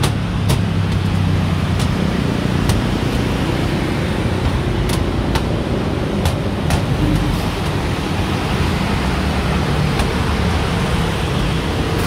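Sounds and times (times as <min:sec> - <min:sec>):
motorbikes and cars passing: 0:00.0 - 0:12.0.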